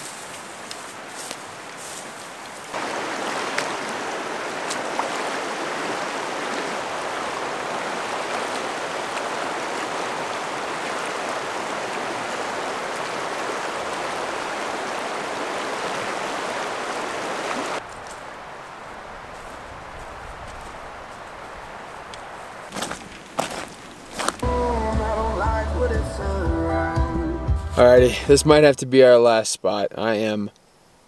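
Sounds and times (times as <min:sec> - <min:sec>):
river rushing over rocks: 0:02.7 - 0:17.8.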